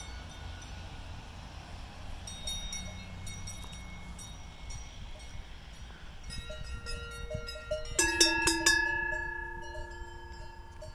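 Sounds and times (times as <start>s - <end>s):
cow bells clanking: 2.2s - 10.9s.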